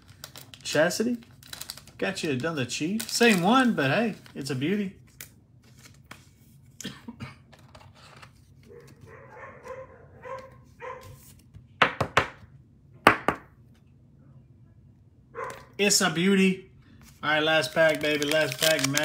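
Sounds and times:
dog barking: 0:08.7 - 0:11.2, 0:15.3 - 0:15.7.

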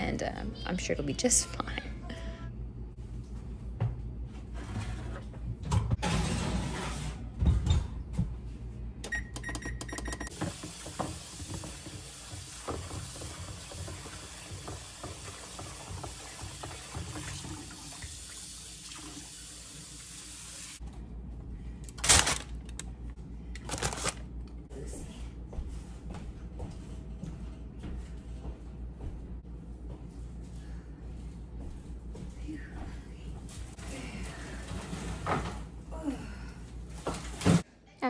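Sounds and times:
tap running into sink: 0:10.3 - 0:18.1.

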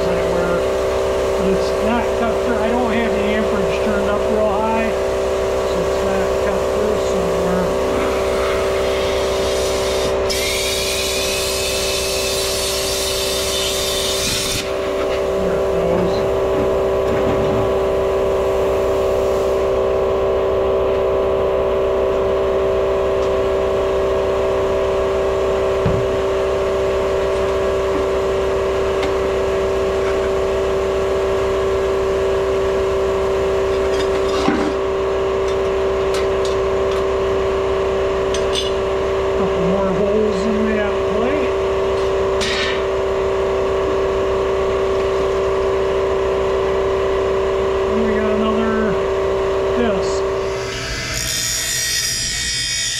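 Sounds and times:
air compressor running: 0:00.0 - 0:52.9
plasma cutter arc hissing: 0:06.6 - 0:14.8.

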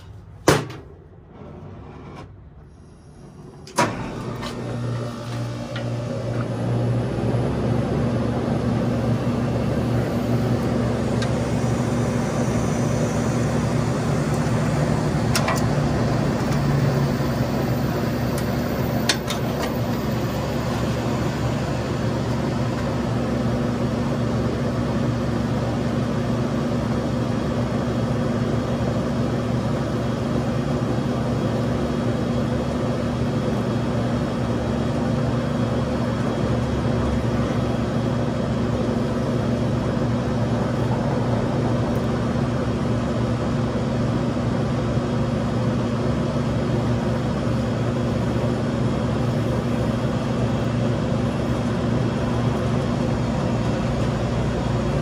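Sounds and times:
torch flame roaring: 0:01.2 - 0:24.2.

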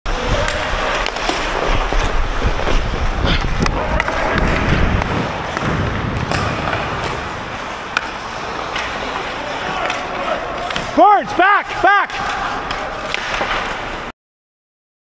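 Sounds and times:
skate blades scraping on ice: 0:00.2 - 0:14.1
hockey sticks and puck clacking: 0:00.3 - 0:14.1
low rumble: 0:02.1 - 0:08.4.

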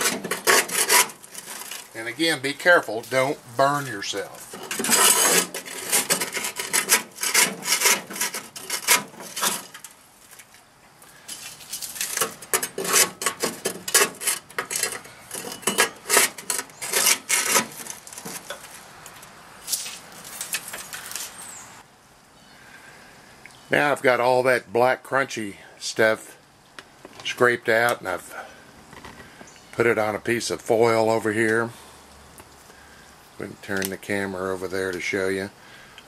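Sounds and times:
scraper scraping grease: 0:00.0 - 0:10.5, 0:11.3 - 0:21.4.

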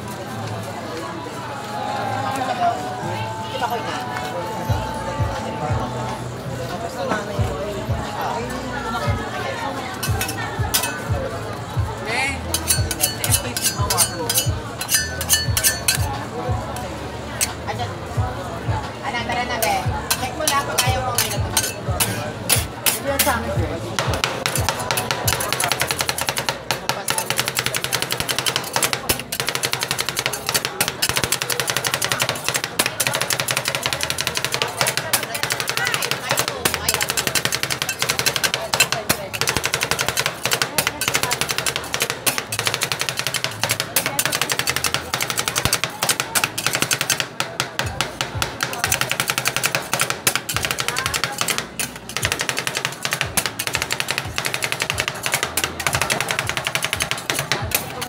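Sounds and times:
metal spatulas striking steel plate: 0:10.0 - 0:11.2, 0:12.5 - 0:16.1, 0:19.6 - 0:23.4, 0:24.0 - 0:58.0.

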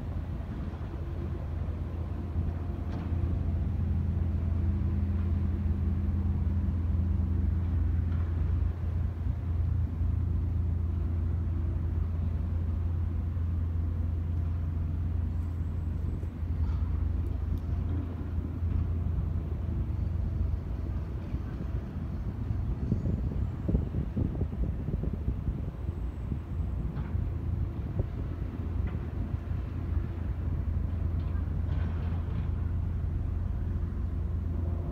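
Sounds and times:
boat diesel engines droning: 0:00.0 - 0:34.9.

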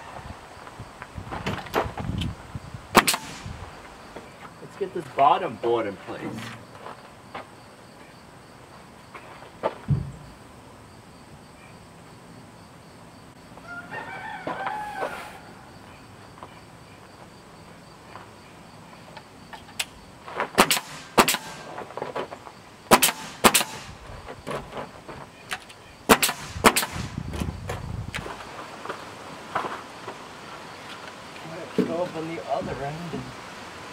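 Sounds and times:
nail gun shots: 0:02.9 - 0:03.6, 0:20.6 - 0:21.8, 0:22.9 - 0:24.0, 0:26.1 - 0:27.2
rooster crowing: 0:13.6 - 0:15.8.

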